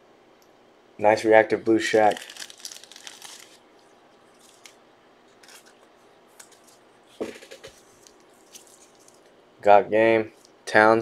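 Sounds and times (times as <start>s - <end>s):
cards rustling: 1.9s - 3.6s, 4.4s - 4.8s, 5.4s - 9.3s.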